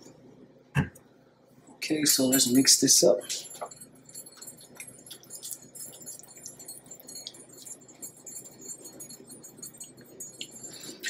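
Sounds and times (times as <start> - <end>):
spatula clinking against glass: 2.1 - 11.0
spatula scraping in glass bowl: 3.3 - 11.0.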